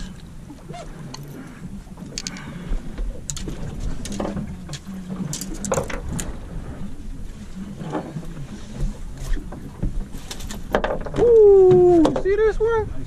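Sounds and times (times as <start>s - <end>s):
knocks and rattles on deck: 10.7s - 12.4s.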